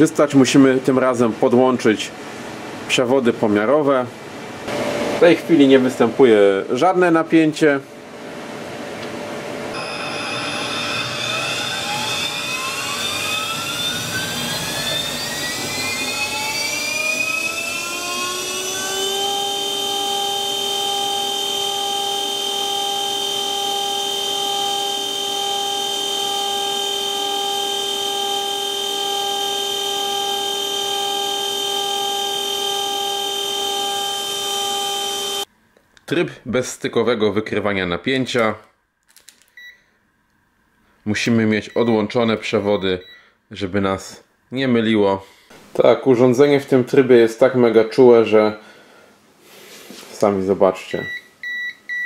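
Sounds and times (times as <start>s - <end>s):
spindle motor whine spinning up: 9.0s - 35.5s.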